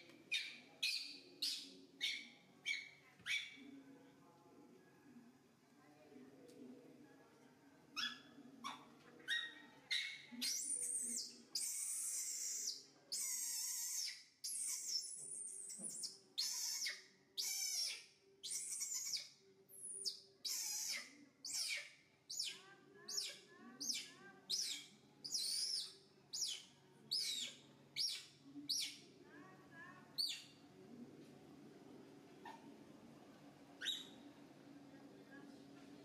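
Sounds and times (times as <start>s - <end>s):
young monkey screaming: 16.4s - 19.2s, 20.5s - 21.8s.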